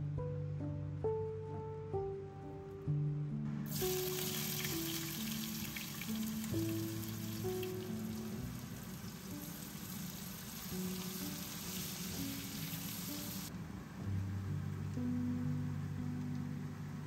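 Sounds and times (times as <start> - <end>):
soft background music: 0.0 - 17.0
food sizzling in oil: 3.7 - 13.5.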